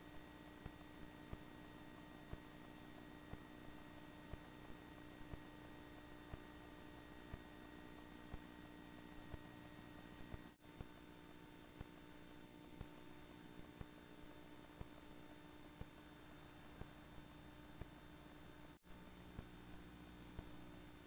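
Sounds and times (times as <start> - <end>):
faint electrical hum: 0.0 - 21.0.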